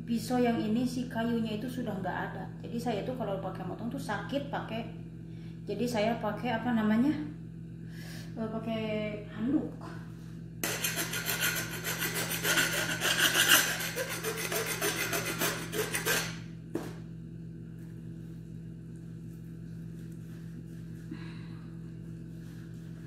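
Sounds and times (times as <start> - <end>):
steady low hum: 0.0 - 23.0
knife sawing through raw meat: 10.6 - 16.4.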